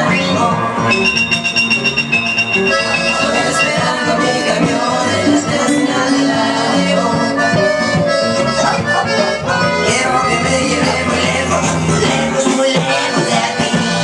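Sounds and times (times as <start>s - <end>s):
loud latin dance music: 0.0s - 14.0s.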